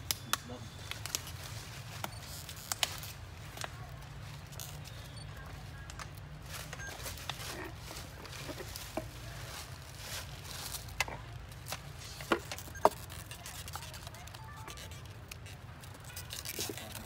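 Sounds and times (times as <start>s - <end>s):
light clicks and crackles: 0.0s - 9.8s, 10.6s - 17.0s.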